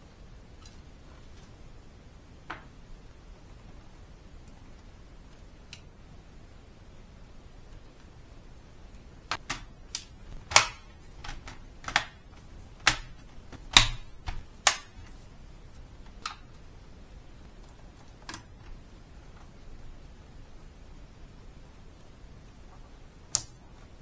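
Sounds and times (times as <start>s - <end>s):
plastic clips snapping: 9.3s - 15.1s, 16.1s - 16.5s, 23.3s - 23.6s.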